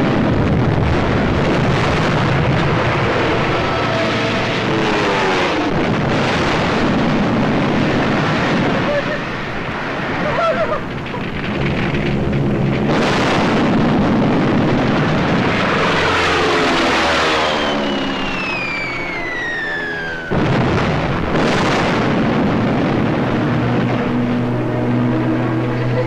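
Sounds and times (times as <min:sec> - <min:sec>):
explosion blasts: 0:00.0 - 0:25.4
engine drone: 0:00.0 - 0:26.0
falling bomb whistle: 0:17.4 - 0:20.4.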